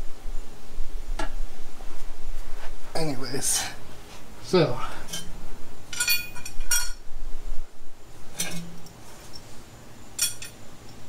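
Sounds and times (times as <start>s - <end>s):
metal parts clinking: 5.9s - 7.0s, 10.2s - 10.6s.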